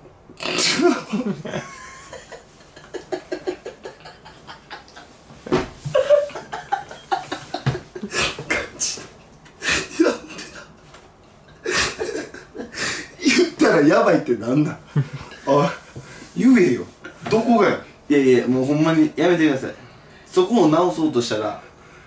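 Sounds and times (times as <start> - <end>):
men laughing: 0.8 - 8.8, 11.6 - 12.9, 14.9 - 15.6.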